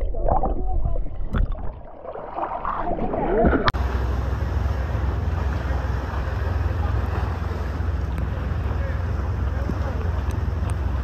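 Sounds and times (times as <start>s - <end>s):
underwater bubbling and gurgling: 0.0s - 11.0s
steady low rumble: 3.1s - 11.0s.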